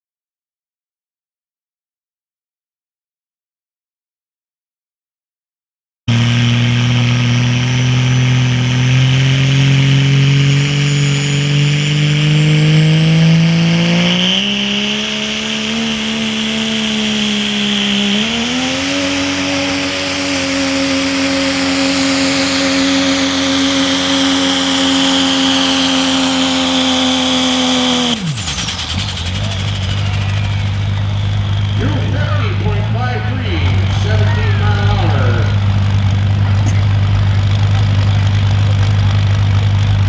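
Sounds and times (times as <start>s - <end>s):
diesel engine at full power: 6.1s - 40.0s
high turbo whistle: 9.4s - 34.9s.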